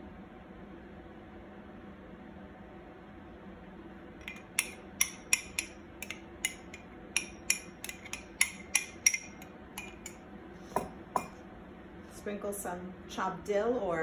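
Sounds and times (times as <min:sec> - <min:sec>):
spoon clinking against dish: 0:04.2 - 0:10.2.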